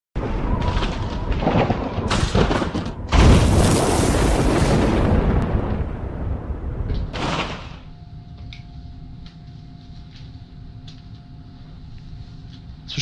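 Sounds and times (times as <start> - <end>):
deep thunder-like boom: 0.2 - 7.9
electrical hum: 0.2 - 13.0.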